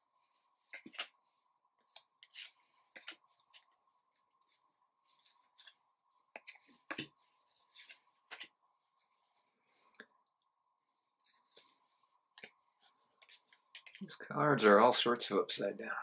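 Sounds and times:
cards swishing against cards: 0.7s - 1.2s, 1.8s - 8.6s.

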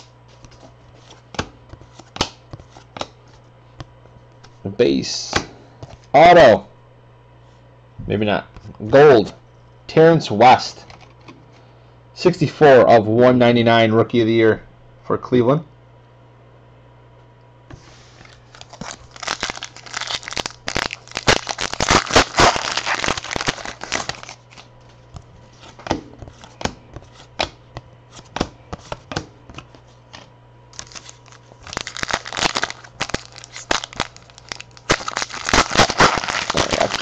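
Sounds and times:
cards shuffled and clicking: 0.0s - 4.6s, 17.7s - 37.0s
steady low hum: 0.0s - 37.0s
wrappers torn and crinkled: 18.3s - 24.7s, 30.8s - 37.0s.

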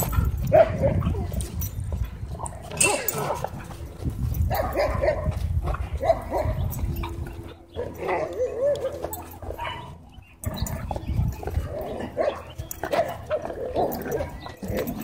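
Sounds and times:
dog barking: 0.5s - 1.2s, 4.5s - 5.3s, 6.0s - 6.6s, 7.8s - 10.0s, 12.1s - 13.3s.

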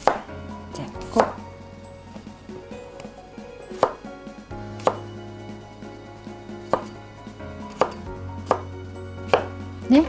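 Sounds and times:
knife chopping on wooden board: 0.0s - 0.3s, 1.1s - 1.4s, 3.8s - 4.1s, 4.8s - 5.0s, 6.6s - 7.0s, 7.7s - 9.6s.

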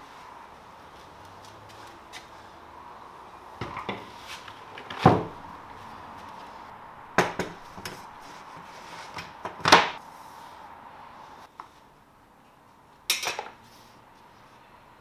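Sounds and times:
wooden board knocking on sawhorses: 7.2s - 8.0s.

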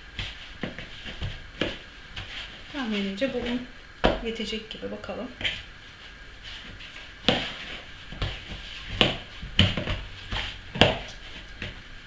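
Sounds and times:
dough slapping in plastic bowl: 0.0s - 4.4s, 6.6s - 11.9s.

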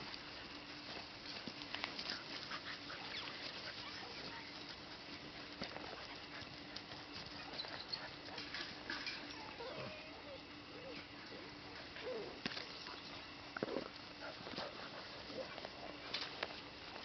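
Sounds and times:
scuffling clicks: 0.0s - 9.3s
faint hum: 0.0s - 17.0s
puppies yelping: 2.5s - 4.6s, 9.2s - 12.4s.

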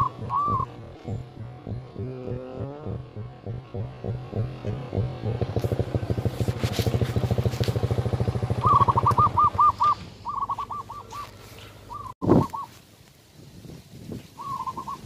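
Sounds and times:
bird chirping trills: 0.0s - 5.4s, 8.6s - 12.7s, 14.4s - 15.0s
small engine puttering: 0.0s - 12.1s.

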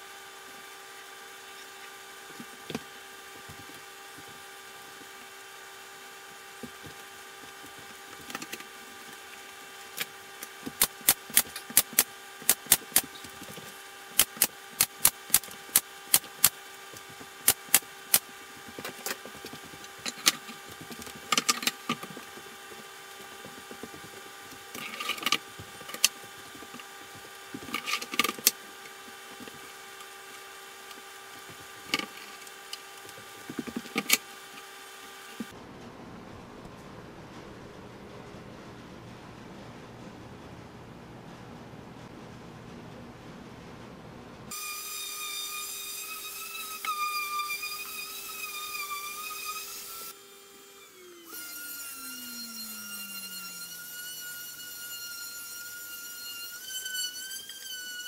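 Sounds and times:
steady hum: 0.0s - 44.6s.

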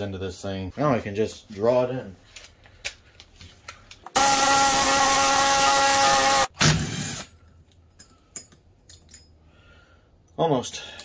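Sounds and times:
power tool running: 4.1s - 7.3s.

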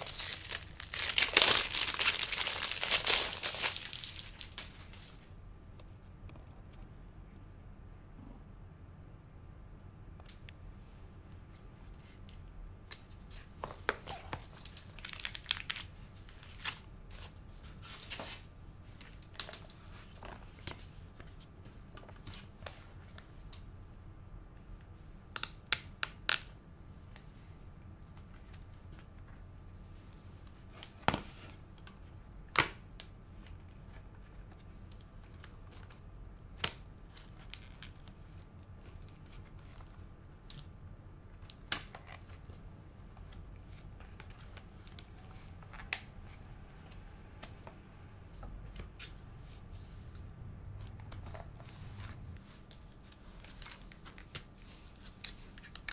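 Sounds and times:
faint low hum: 0.0s - 55.9s.

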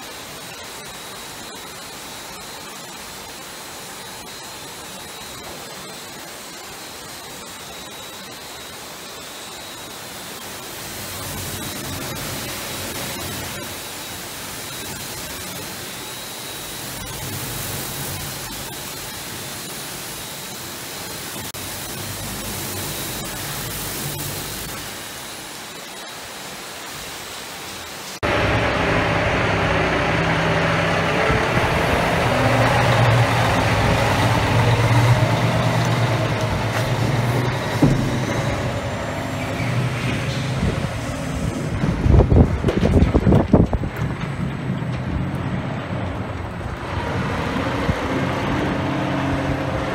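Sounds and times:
faint steady whine: 0.0s - 30.6s
truck engine idling: 28.2s - 42.6s
wind on microphone: 40.4s - 44.8s.

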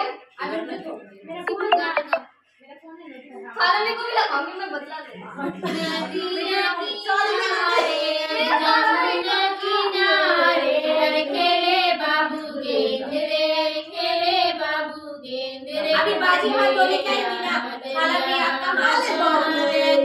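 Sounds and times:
high-pitched voices singing: 1.4s - 2.2s.

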